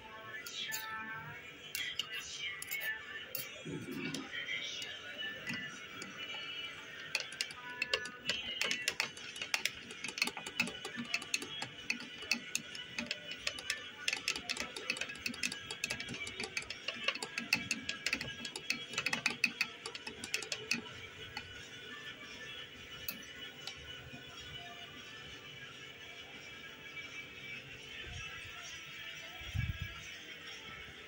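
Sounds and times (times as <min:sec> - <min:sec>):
teaspoon stirring in ceramic mug: 0:01.7 - 0:21.7.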